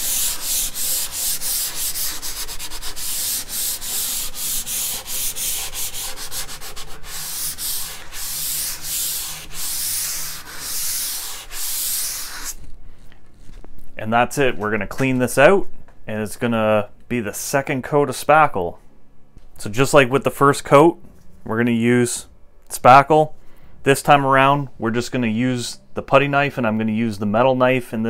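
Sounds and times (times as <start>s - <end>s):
sanding block scratching: 0.0s - 12.6s.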